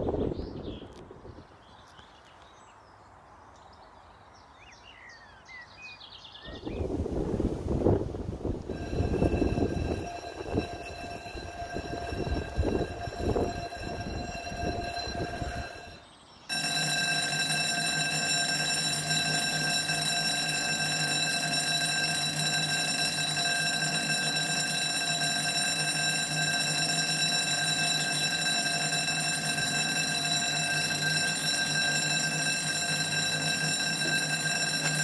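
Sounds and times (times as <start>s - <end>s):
train passing: 7.4s - 35.0s
level crossing warning bells: 8.4s - 35.0s.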